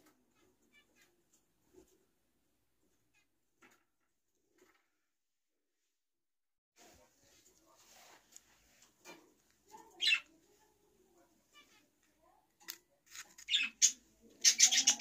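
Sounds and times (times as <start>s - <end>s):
paper card rustling: 12.6s - 13.5s.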